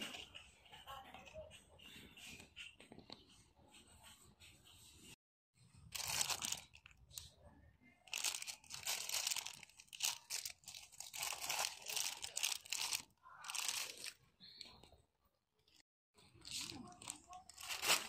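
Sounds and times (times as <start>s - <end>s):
plastic packaging crinkling: 5.9s - 7.3s, 8.1s - 14.2s, 16.4s - 18.0s.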